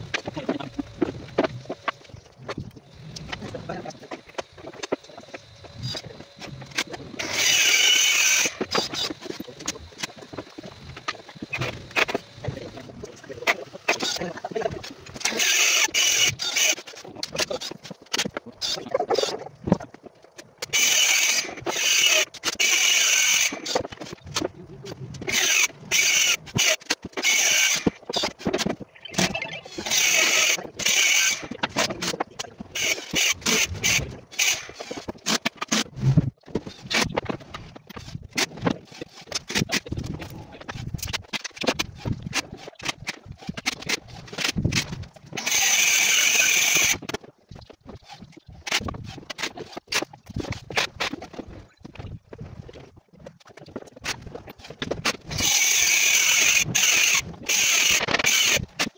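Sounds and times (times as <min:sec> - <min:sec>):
cordless drill whirring: 0:07.2 - 0:09.0, 0:45.4 - 0:47.0
knocks and clicks: 0:27.8 - 0:30.0.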